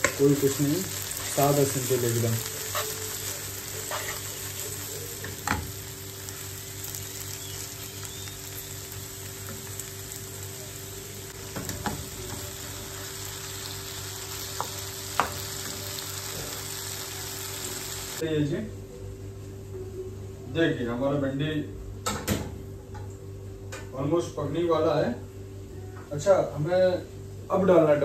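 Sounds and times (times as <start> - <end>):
vegetables sizzling in a pan: 0.0 - 18.2.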